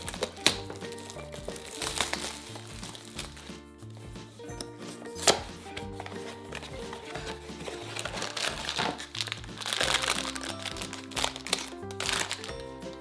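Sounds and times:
foil bag crinkling: 0:00.0 - 0:03.4, 0:06.0 - 0:12.6
light background music: 0:00.0 - 0:13.0
cardboard flap snapping: 0:07.9 - 0:12.5.

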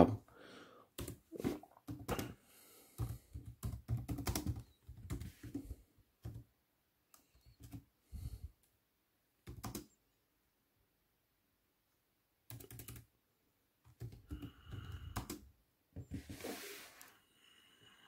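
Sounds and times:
laptop keyboard typing: 0:01.0 - 0:01.2, 0:01.8 - 0:06.5, 0:07.2 - 0:07.9, 0:09.4 - 0:10.0, 0:12.5 - 0:13.1, 0:13.8 - 0:15.5.

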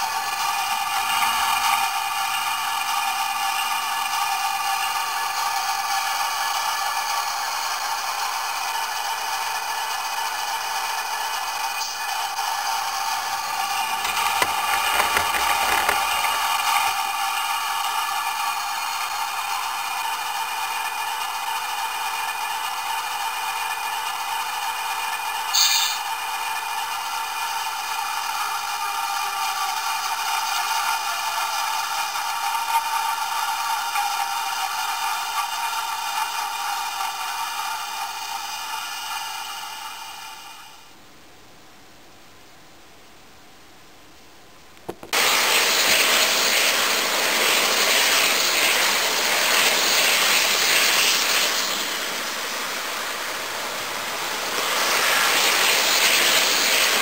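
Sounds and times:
diesel engine sound through small speaker: 0:00.0 - 0:17.1
model locomotive sound: 0:00.0 - 0:41.0, 0:45.1 - 0:57.0.

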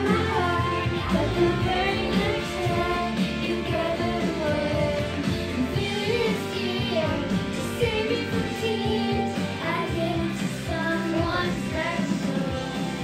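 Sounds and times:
music with singing voice: 0:00.0 - 0:13.0.

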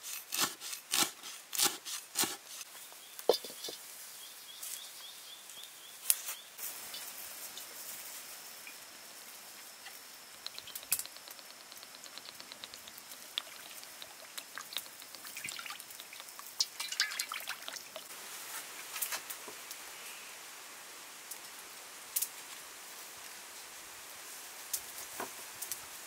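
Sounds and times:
wood fire crackling and popping: 0:10.3 - 0:18.1.

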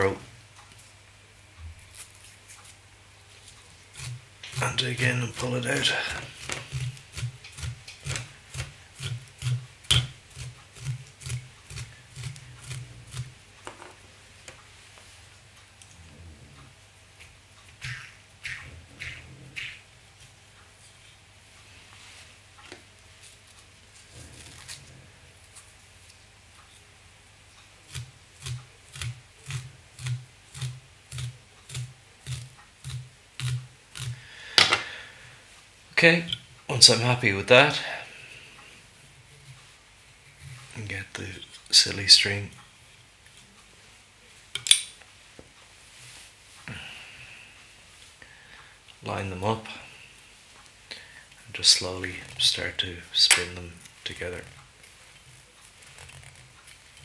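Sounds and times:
velcro raking through fibres: 0:01.8 - 0:13.4, 0:23.2 - 0:25.8, 0:27.8 - 0:34.2, 0:45.8 - 0:46.6, 0:51.5 - 0:57.0.

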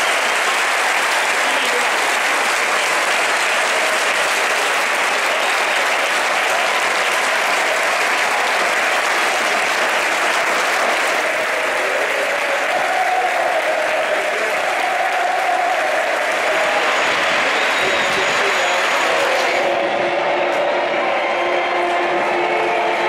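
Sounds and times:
stadium crowd applauding: 0:00.0 - 0:23.0.

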